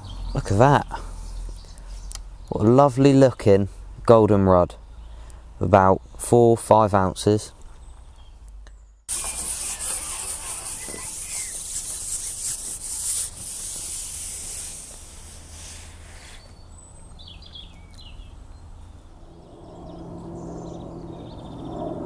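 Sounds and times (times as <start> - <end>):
waterside ambience: 9.1 - 16.4
rustling hiss: 9.1 - 16.5
bird chirps: 16.0 - 21.9.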